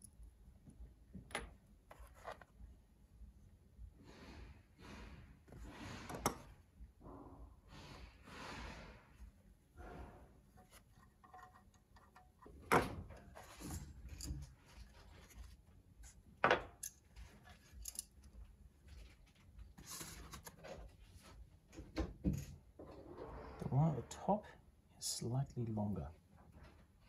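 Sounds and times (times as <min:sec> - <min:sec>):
metal parts clicking on workbench: 0:16.5 - 0:18.2.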